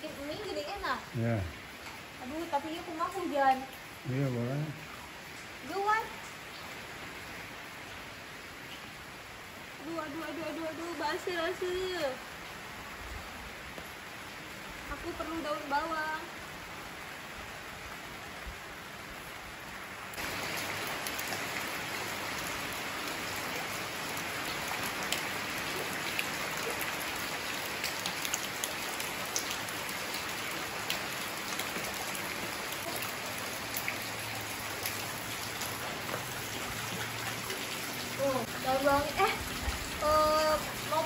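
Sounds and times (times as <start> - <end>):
rain on wet concrete: 0.0 - 41.0.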